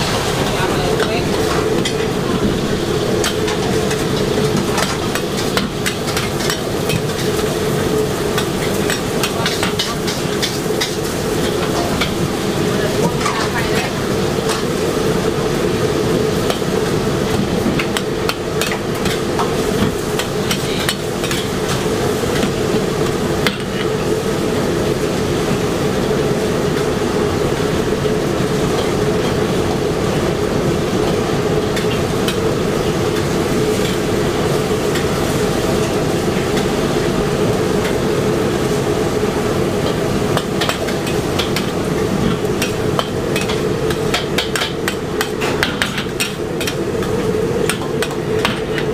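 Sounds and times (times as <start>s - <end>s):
spatula scraping and clanking on wok: 0.0s - 15.1s, 39.8s - 48.9s
gas burner running: 0.0s - 48.9s.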